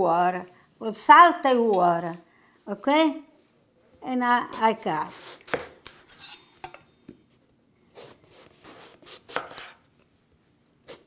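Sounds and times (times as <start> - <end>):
knife slicing eggplant on cutting board: 4.5 - 6.8, 7.9 - 9.8.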